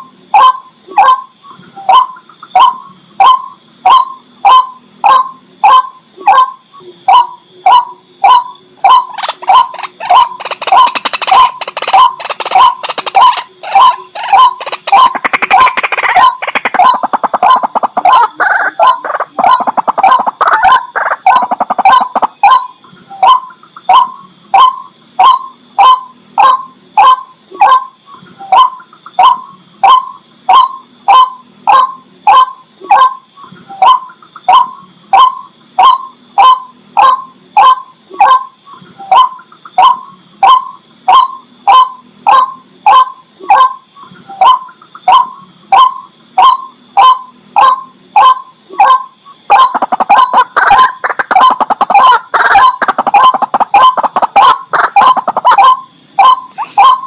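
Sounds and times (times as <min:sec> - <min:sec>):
waterhen calling: 0:07.1 - 0:27.8, 0:44.4 - 0:57.0.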